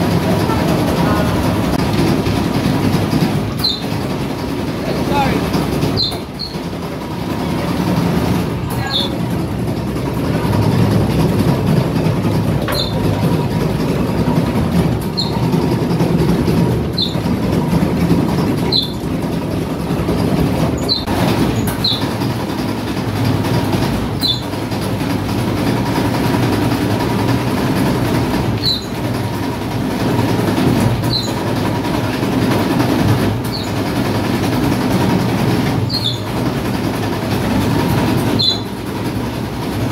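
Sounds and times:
dough-rolling machine rumbling: 0:00.0 - 0:39.9
high squeak: 0:03.6 - 0:04.0, 0:05.9 - 0:06.7, 0:08.8 - 0:09.2, 0:12.7 - 0:13.1, 0:15.1 - 0:15.4, 0:16.9 - 0:17.3, 0:18.7 - 0:19.0, 0:20.8 - 0:22.1, 0:24.2 - 0:24.5, 0:28.6 - 0:29.0, 0:31.0 - 0:31.4, 0:35.9 - 0:36.4, 0:38.4 - 0:38.7.

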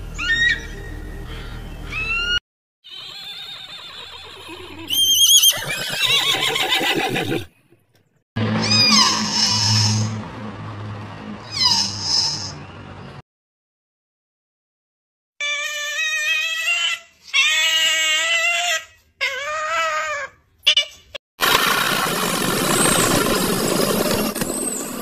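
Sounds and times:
high wavering animal call: 0:00.1 - 0:05.6, 0:08.6 - 0:10.2
falling animal calls: 0:00.1 - 0:07.4, 0:08.6 - 0:10.2.

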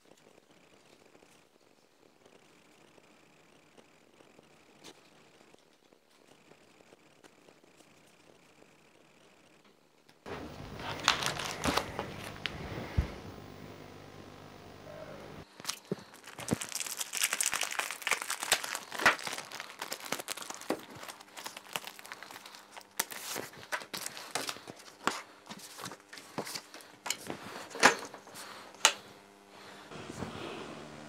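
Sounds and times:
plastic wrapping crinkling and tearing: 0:10.3 - 0:12.6, 0:15.4 - 0:28.2.

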